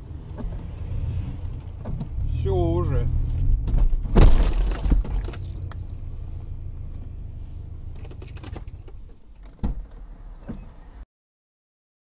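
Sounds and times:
car crash: 0:03.8 - 0:05.8
metallic ringing and rattle: 0:04.4 - 0:06.1.

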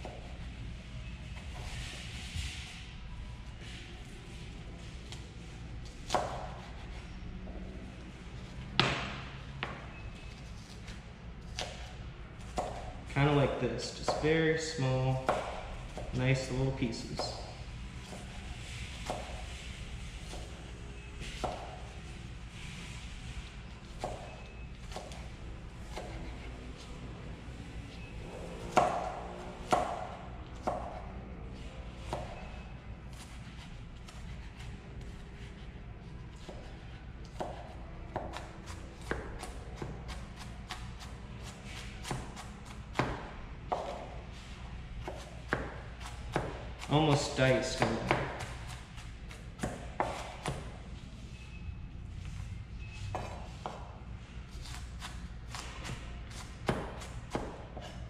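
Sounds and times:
knife chopping on cutting board: 0:06.0 - 0:06.9, 0:11.4 - 0:12.9, 0:14.0 - 0:14.4, 0:15.1 - 0:16.1, 0:19.0 - 0:19.4, 0:21.3 - 0:21.9, 0:23.8 - 0:25.3, 0:25.9 - 0:26.9, 0:28.6 - 0:31.0, 0:32.0 - 0:35.6, 0:36.3 - 0:44.2, 0:45.0 - 0:50.7, 0:53.1 - 0:54.0, 0:54.6 - 0:58.0
knife chopping on plastic board: 0:14.0 - 0:14.3, 0:15.2 - 0:15.6, 0:25.9 - 0:26.4, 0:28.7 - 0:31.0, 0:45.0 - 0:50.7, 0:54.6 - 0:58.0.

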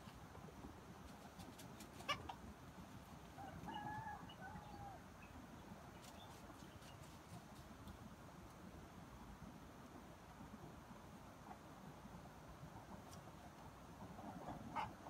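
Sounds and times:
rooster crowing faintly: 0:03.3 - 0:05.1.

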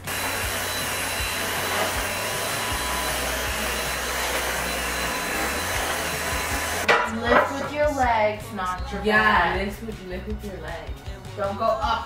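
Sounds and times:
electric motor whooshing: 0:00.0 - 0:06.9.

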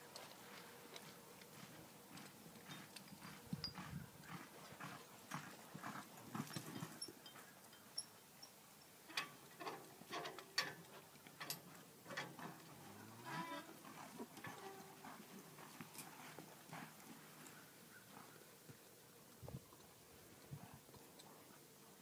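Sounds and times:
horse hoofbeats on soft dirt: 0:00.0 - 0:07.6, 0:11.7 - 0:18.8, 0:19.4 - 0:21.6.

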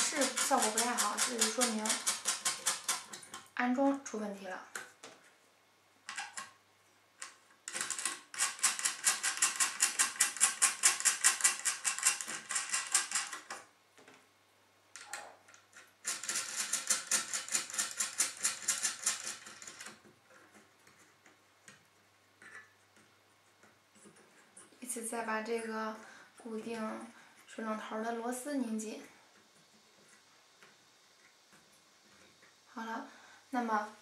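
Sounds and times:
rapid clicking of screws turning: 0:00.0 - 0:03.5, 0:06.1 - 0:06.5, 0:07.2 - 0:13.7, 0:15.0 - 0:21.8.

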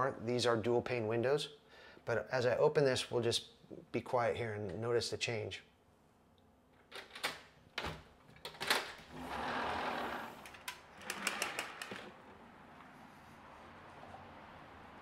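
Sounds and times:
sliding door clicks and rolling: 0:06.8 - 0:12.9
freeway traffic hum: 0:12.1 - 0:15.0.

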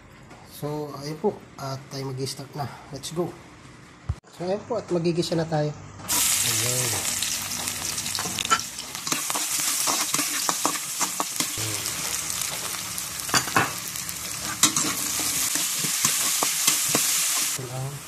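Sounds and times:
onion and garlic sizzling in oil: 0:06.1 - 0:18.0
spatula scraping pan: 0:14.3 - 0:17.6.

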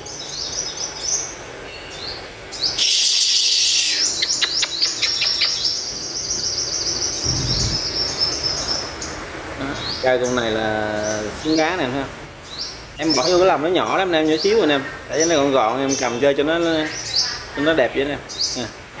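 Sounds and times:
bird singing high twittering: 0:00.0 - 0:11.8.

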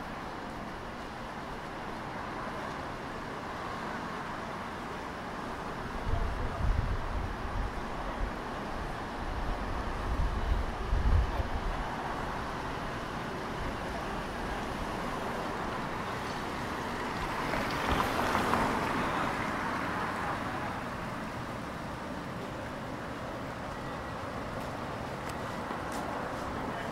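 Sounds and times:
street traffic noise: 0:00.0 - 0:26.9
wind rumble on microphone: 0:06.0 - 0:12.5.

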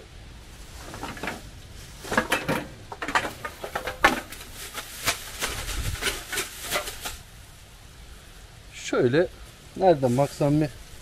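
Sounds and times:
bottles and cans clinking: 0:02.1 - 0:04.6.

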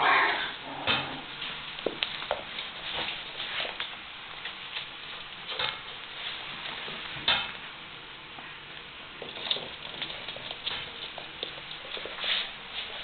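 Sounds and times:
rustling scrap: 0:02.6 - 0:03.8, 0:09.4 - 0:13.0.

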